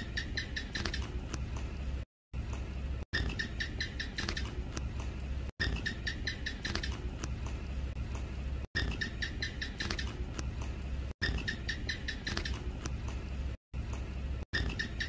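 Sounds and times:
gecko clicky chirps: 0.0s - 1.3s, 3.2s - 4.8s, 5.6s - 7.4s, 8.8s - 10.4s, 11.2s - 12.9s, 14.6s - 15.0s.

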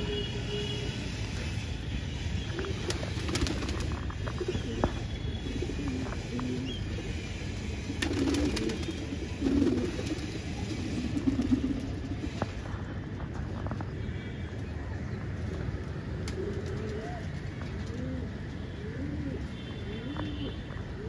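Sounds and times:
low city rumble: 0.0s - 21.0s
pigeons cooing: 2.7s - 7.1s, 7.9s - 12.5s.

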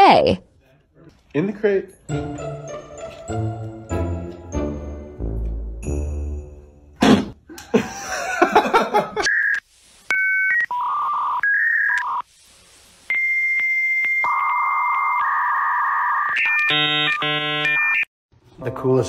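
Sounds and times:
hissing static: 9.2s - 14.0s.

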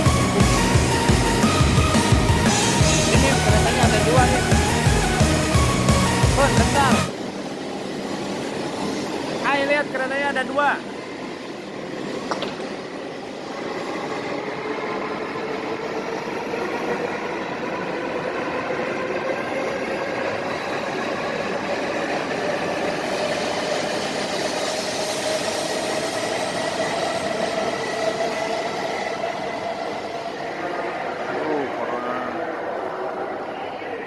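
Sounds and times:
rising motor whine: 0.0s - 7.2s
train cars passing: 0.0s - 34.0s.

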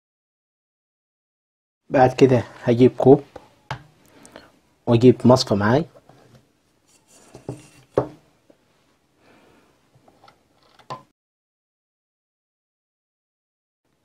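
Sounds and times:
kitchenware knocking: 7.3s - 8.2s.

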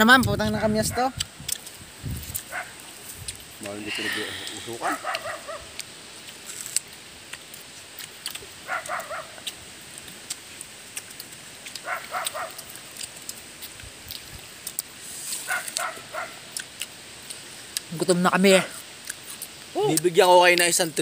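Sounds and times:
animal yelping calls: 4.1s - 5.8s, 8.6s - 9.6s, 11.7s - 12.8s, 15.4s - 16.6s.

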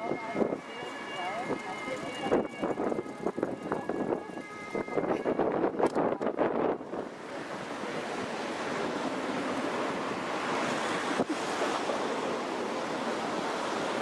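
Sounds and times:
wind on microphone: 1.4s - 14.0s
river rushing: 6.3s - 14.0s.

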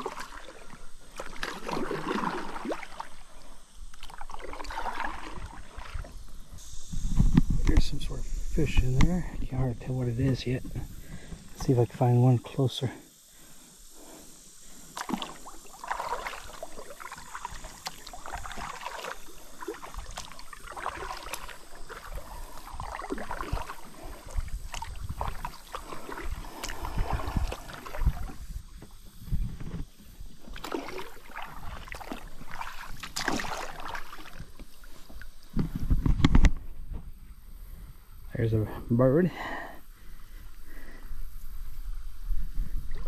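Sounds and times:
kayak paddle splashing in water: 0.0s - 7.9s, 14.8s - 36.2s
water gurgling around hull: 0.0s - 38.0s.

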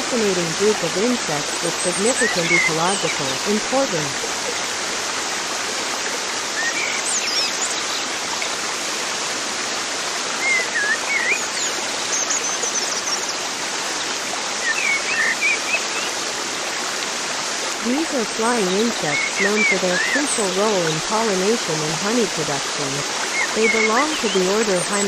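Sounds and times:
birds chirping: 0.0s - 4.8s, 17.9s - 25.0s
running water: 0.0s - 25.0s.

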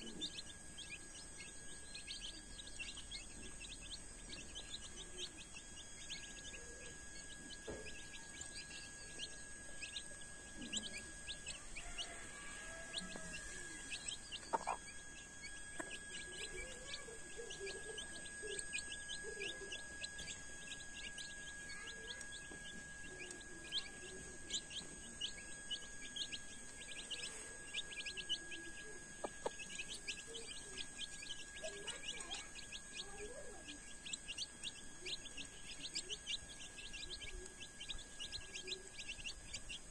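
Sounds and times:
chicks peeping: 0.0s - 39.9s
hen clucking softly: 10.6s - 14.9s.

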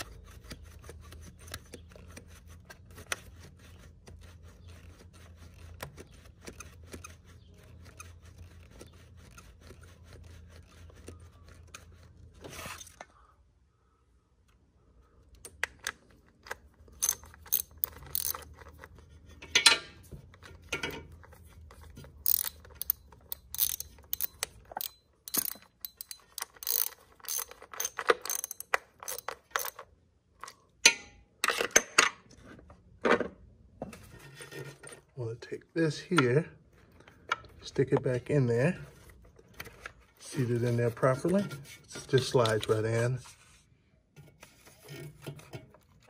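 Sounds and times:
hand ratchet clicking: 17.0s - 18.5s, 22.2s - 29.8s.

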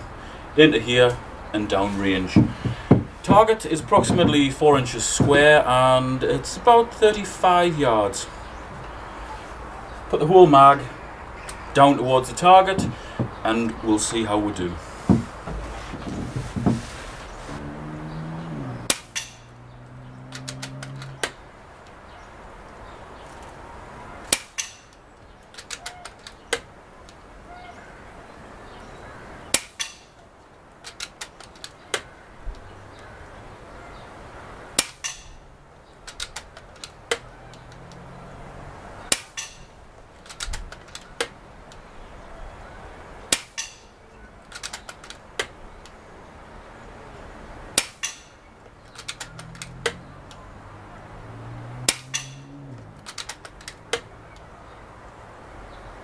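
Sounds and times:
air rifle cracks: 24.3s - 25.0s, 29.5s - 30.1s, 43.3s - 43.9s, 47.8s - 50.0s
rifle action clicks: 44.5s - 46.0s, 53.0s - 54.0s.

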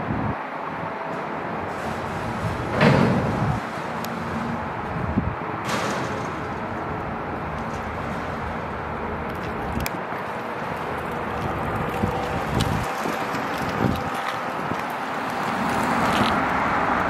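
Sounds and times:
elevator door opening: 1.7s - 3.7s
loud metallic clunk: 1.8s - 3.6s, 5.6s - 6.7s.

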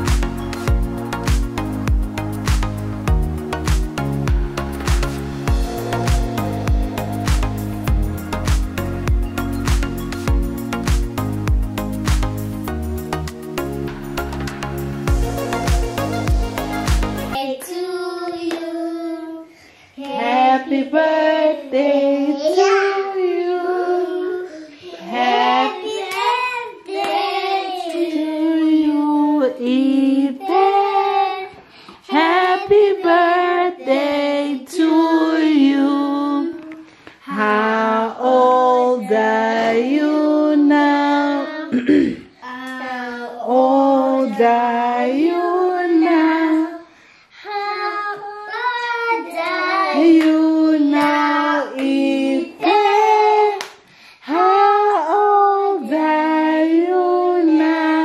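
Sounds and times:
children singing a birthday song: 5.4s - 8.4s, 15.1s - 58.0s
woman singing: 15.2s - 41.8s, 42.8s - 46.9s, 49.6s - 58.0s.

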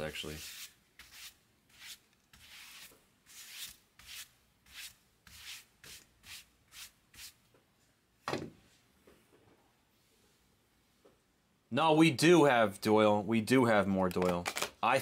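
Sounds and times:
short rubbing strokes: 0.3s - 7.4s.

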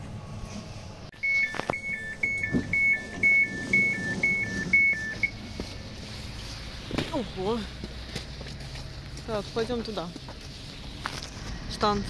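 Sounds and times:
two-tone door warning beeps: 1.1s - 5.4s.

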